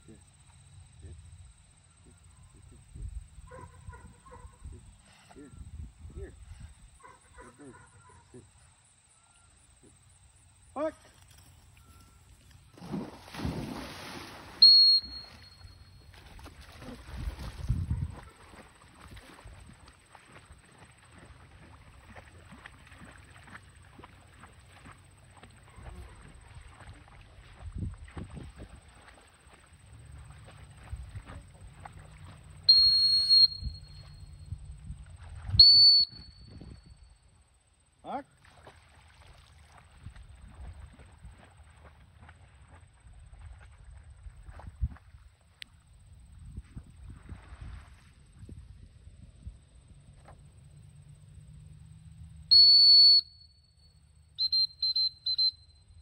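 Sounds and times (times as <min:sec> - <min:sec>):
dog whistle blasts: 0:14.6 - 0:15.8, 0:32.7 - 0:34.2, 0:35.6 - 0:37.0, 0:52.5 - 0:53.7, 0:54.4 - 0:55.8.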